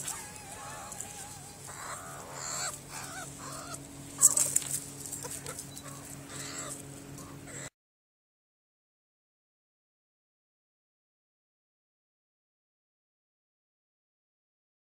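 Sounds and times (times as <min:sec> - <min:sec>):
meerkats chirping: 0:00.0 - 0:07.7.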